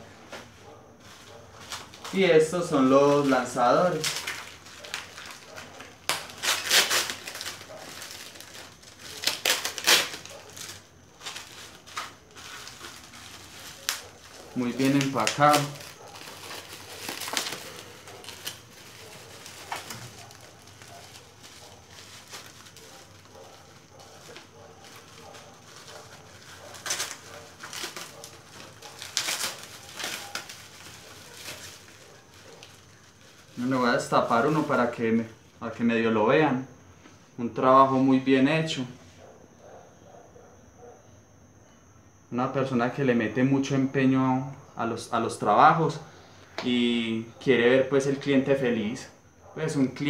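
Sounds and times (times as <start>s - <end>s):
plastic bags crinkling: 1.0s - 35.0s.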